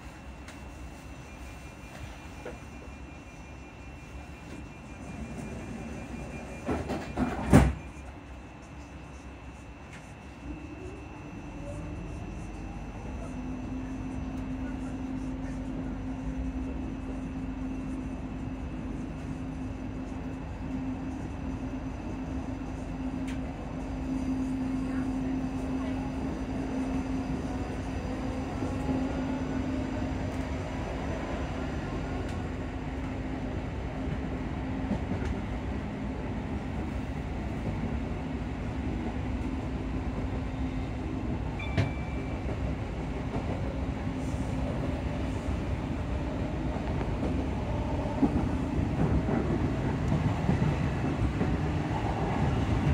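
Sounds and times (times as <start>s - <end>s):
train cooling fans humming: 0.0s - 52.9s
wheel and track rumble: 41.2s - 52.9s.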